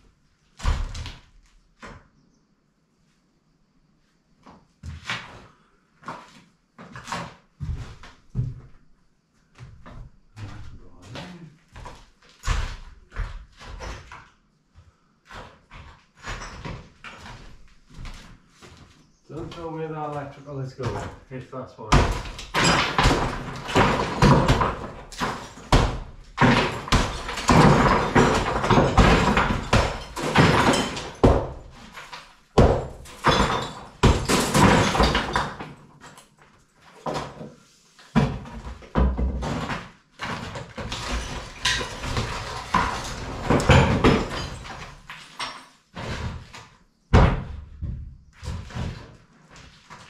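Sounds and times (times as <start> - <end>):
plaster and masonry falling: 0.6 - 2.0, 9.6 - 50.0
knocks and thuds on stone wall: 0.6 - 2.1, 6.8 - 8.9, 9.5 - 50.0.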